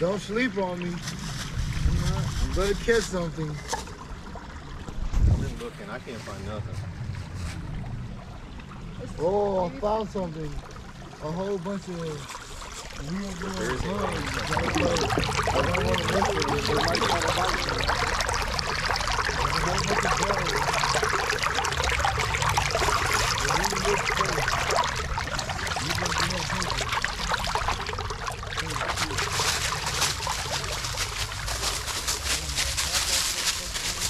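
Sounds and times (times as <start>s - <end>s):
stream water rushing: 7.1s - 34.0s.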